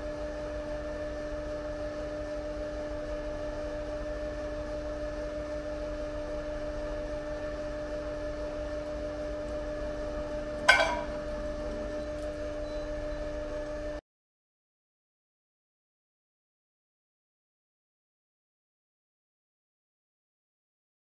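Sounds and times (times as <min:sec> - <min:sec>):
steady machine hum: 0:00.0 - 0:14.0.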